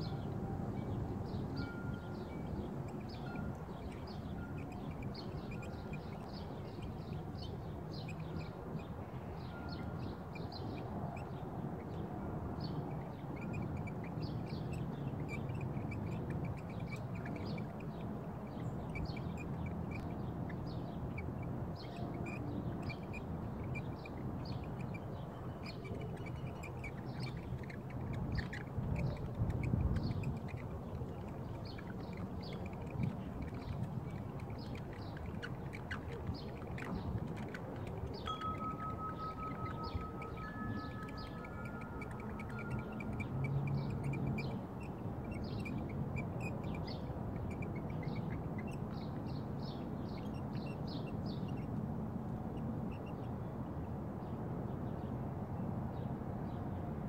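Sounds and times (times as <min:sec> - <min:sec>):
birds calling high notes: 0:00.0 - 0:10.3, 0:21.2 - 0:46.4
wind rumble on microphone: 0:00.0 - 0:57.0.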